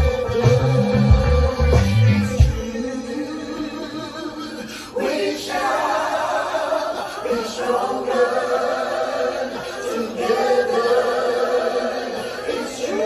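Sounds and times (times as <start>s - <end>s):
layered a cappella vocal harmonies: 0.0s - 13.0s.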